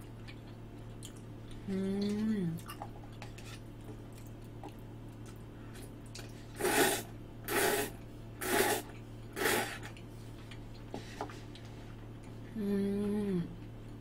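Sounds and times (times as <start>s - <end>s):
person slurping noodles: 6.6s - 9.9s.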